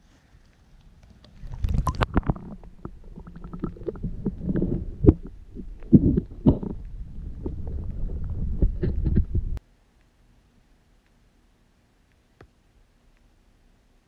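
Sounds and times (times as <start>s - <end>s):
muffled underwater gurgling: 0.8s - 9.6s
underwater knocks and pops: 1.4s - 9.6s.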